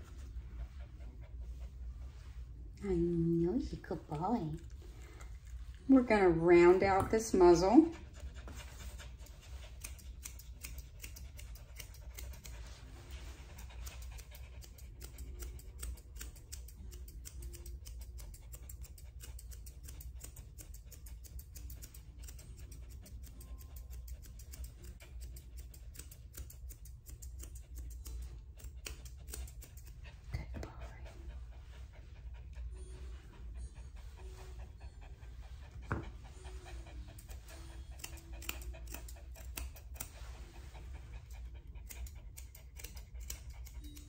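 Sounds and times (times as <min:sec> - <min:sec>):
low steady hum: 0:00.0 - 0:19.1, 0:19.7 - 0:44.0
grooming shears snipping: 0:06.6 - 0:31.2, 0:34.2 - 0:44.0.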